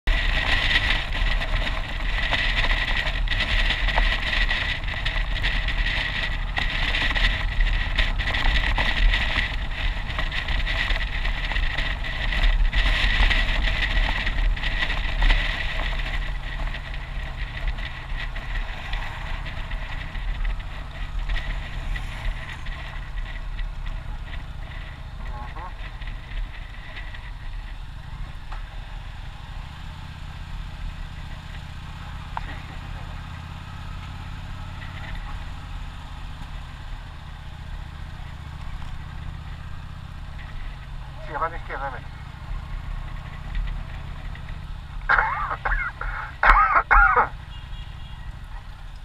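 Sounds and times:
motorcycle engine: 0.0 - 49.0
wind noise: 0.1 - 27.8.

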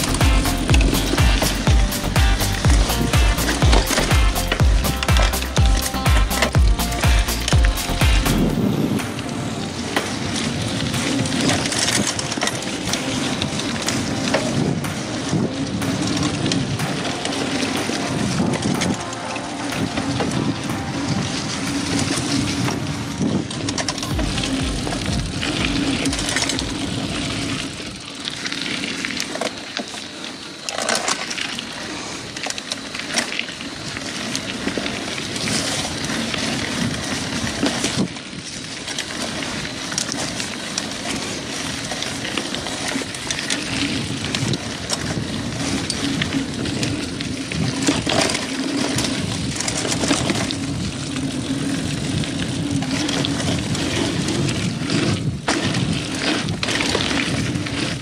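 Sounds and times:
bike frame and chain rattling: 0.0 - 58.0
bike tyres on dirt trail: 0.0 - 58.0.

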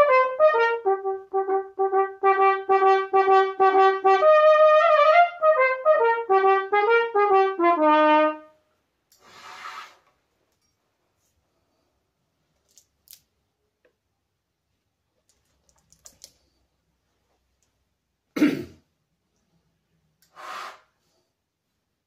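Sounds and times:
man clearing his throat: 18.3 - 18.9
short breath: 20.3 - 21.4.

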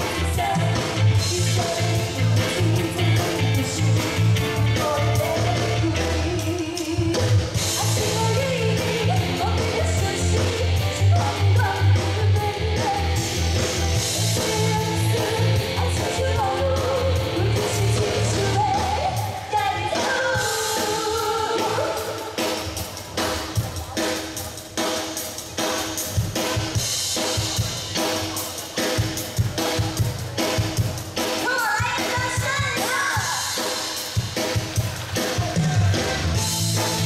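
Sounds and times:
woman singing into microphone: 0.0 - 13.5, 14.2 - 22.4
live band playing pop song: 0.0 - 37.0.

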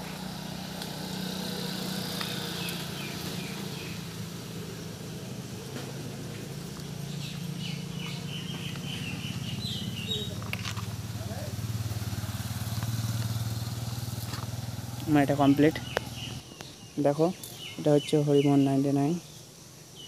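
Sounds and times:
low motor hum: 0.0 - 16.4
bird chirping: 1.5 - 5.0, 6.4 - 11.6, 12.7 - 20.0.

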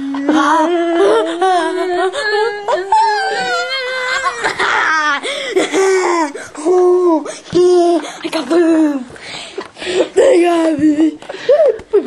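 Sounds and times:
boy wailing: 0.0 - 9.0.

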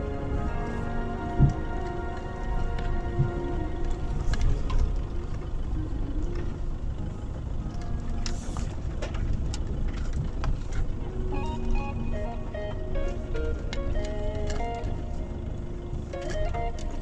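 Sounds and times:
background music: 0.0 - 17.0
in-cab rumble of pickup driving: 0.0 - 17.0
knocks and rattles of vehicle bumping: 7.3 - 11.5.

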